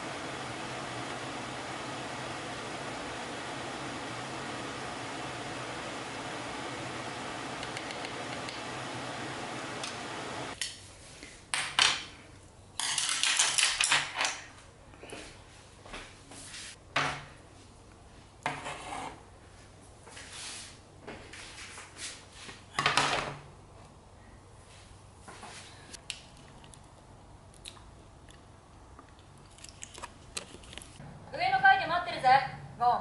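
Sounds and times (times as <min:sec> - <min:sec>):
scraping rub on tray: 0:18.5 - 0:19.2.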